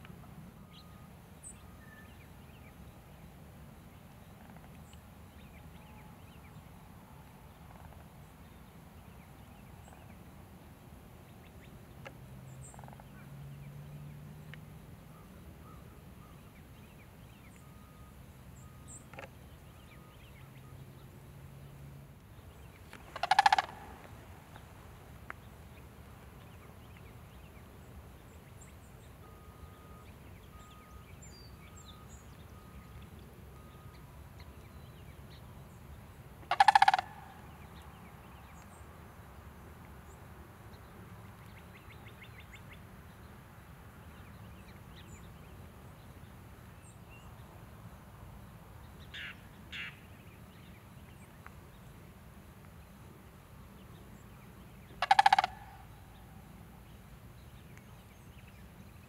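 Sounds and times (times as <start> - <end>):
crane calling: 22.9 - 24.7, 36.4 - 38.4, 54.8 - 56.8.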